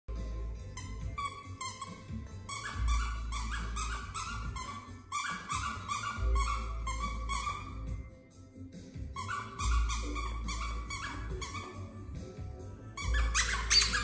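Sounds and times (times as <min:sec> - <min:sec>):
squeaky dog toy squeaking: 0:00.1 - 0:08.1, 0:09.1 - 0:14.0.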